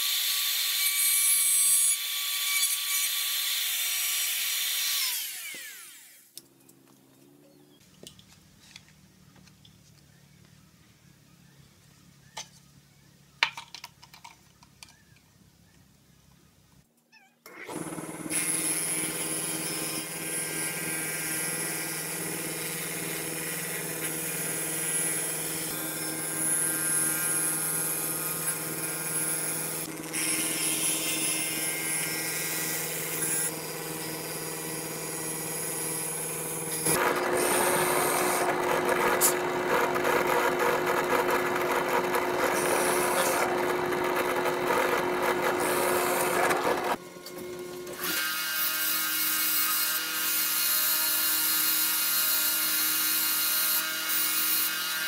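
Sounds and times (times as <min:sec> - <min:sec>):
router cutting wood: 0:00.0 - 0:06.3, 0:17.5 - 0:47.0, 0:47.8 - 0:55.0
rough power tool: 0:00.0 - 0:06.4, 0:17.5 - 0:47.0, 0:47.7 - 0:55.0.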